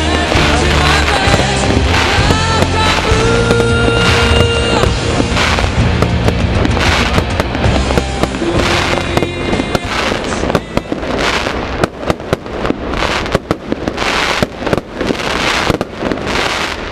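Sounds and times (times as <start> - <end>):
bursts of hiss: 0.0 - 16.9.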